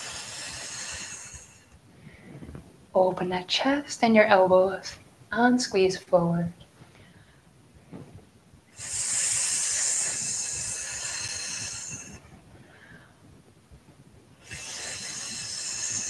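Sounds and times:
woman breathing out hissing: 0:00.0 - 0:02.3, 0:08.7 - 0:13.2, 0:14.4 - 0:16.0.

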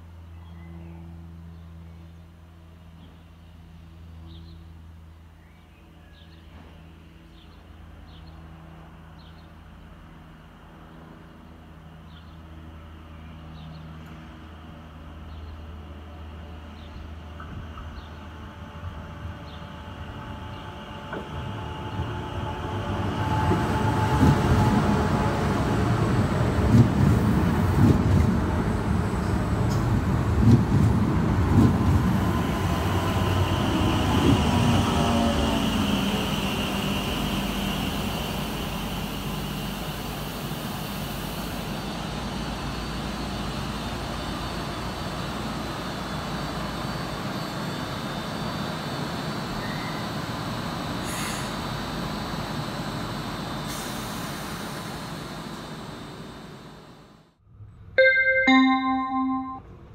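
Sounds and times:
electric train running in: 0:17.3 - 0:57.3
high steady tone: 0:58.0 - 0:59.7.

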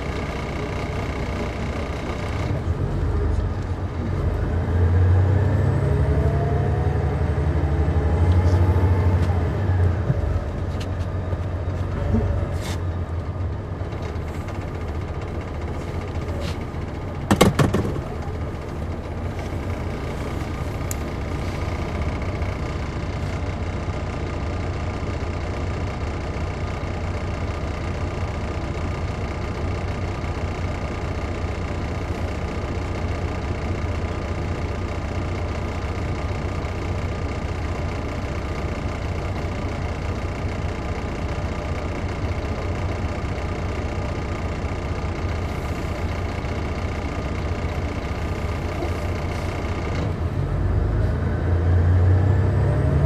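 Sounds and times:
diesel bus engine running: 0:00.0 - 0:53.0
sharp knocks: 0:17.3 - 0:18.1.

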